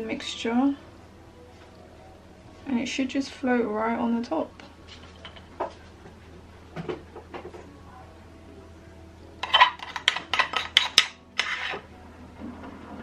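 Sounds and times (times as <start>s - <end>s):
metal spoon scraping ceramic bowl: 9.4s - 11.9s.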